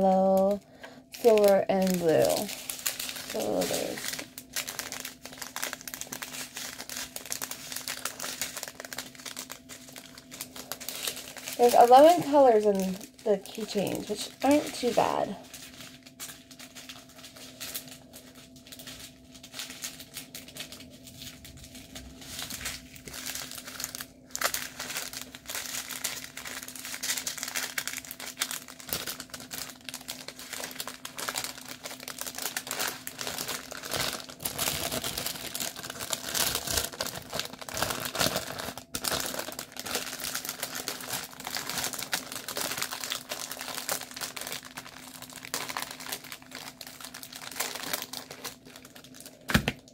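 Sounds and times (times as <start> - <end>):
faint steady hum: 0.0 - 49.9
plastic packaging crinkling: 0.0 - 49.9.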